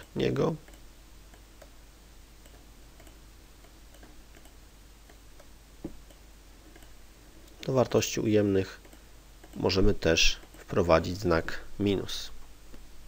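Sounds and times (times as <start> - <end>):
low steady hum: 0.0 - 13.0
computer mouse clicks: 2.4 - 7.7, 8.8 - 9.7.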